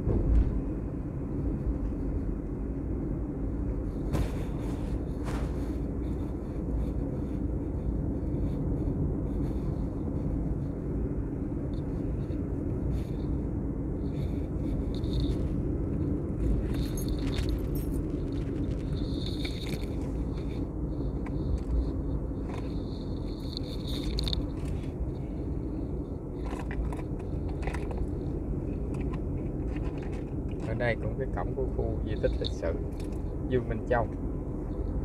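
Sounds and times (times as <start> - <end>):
constant low hum: 0.0 - 35.0
vehicle engine rumble: 0.0 - 35.0
wind noise on microphone: 0.0 - 35.0.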